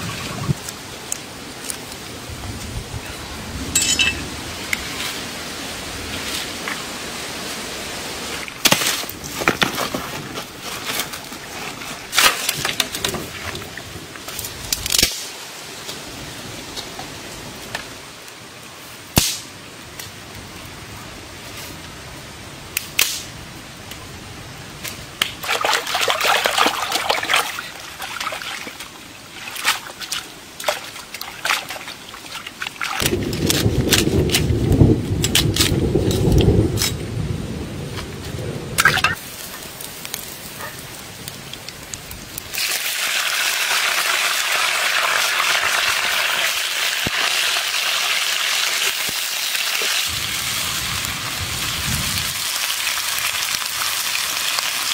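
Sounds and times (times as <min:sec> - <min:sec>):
water splashing and sloshing: 0:00.0 - 0:02.0, 0:03.7 - 0:15.0, 0:25.2 - 0:36.5, 0:38.8 - 0:39.3.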